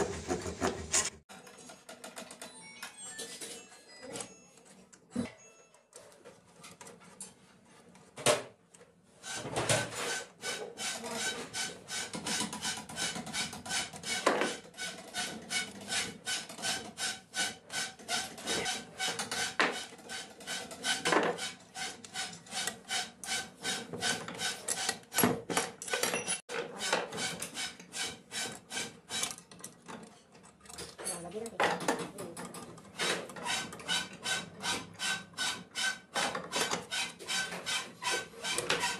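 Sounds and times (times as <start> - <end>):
screwdriver scraping metal: 9.3 - 25.3, 25.9 - 31.2, 32.5 - 38.9.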